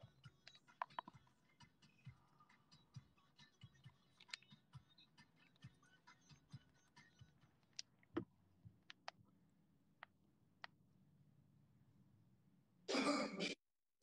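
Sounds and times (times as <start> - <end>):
faint clicks and ticks: 0.0 - 2.2, 3.6 - 9.3.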